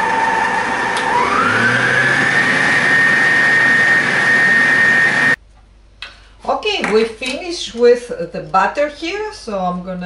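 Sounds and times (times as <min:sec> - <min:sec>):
stand mixer motor whine: 0:00.0 - 0:05.4.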